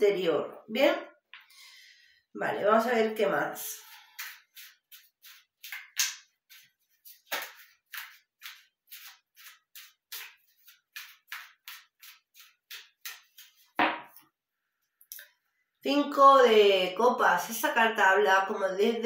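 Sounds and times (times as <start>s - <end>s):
cards being shuffled: 4.1s - 13.8s
loud tap: 13.8s - 14.1s.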